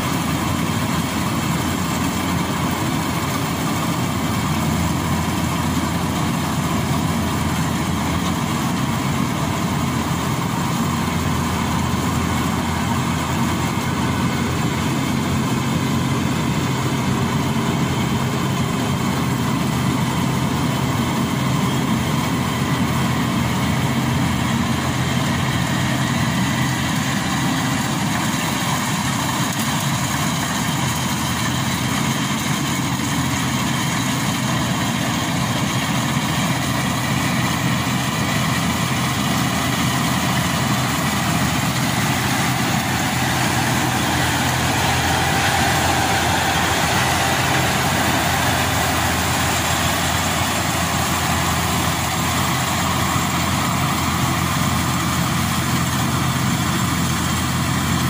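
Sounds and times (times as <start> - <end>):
combine harvester engine drone: 0.0 - 58.0.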